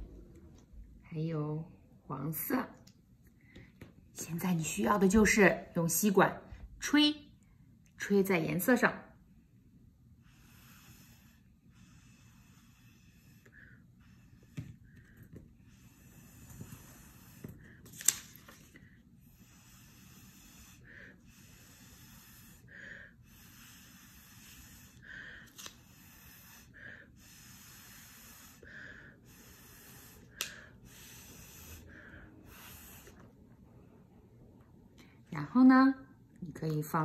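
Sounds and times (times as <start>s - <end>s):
breath blown through a straw: 19.2s - 33.3s.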